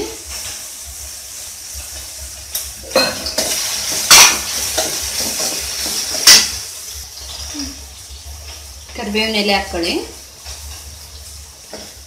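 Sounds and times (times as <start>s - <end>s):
food sizzling: 0.0s - 12.0s
spoon scraping a pan: 2.9s - 6.6s.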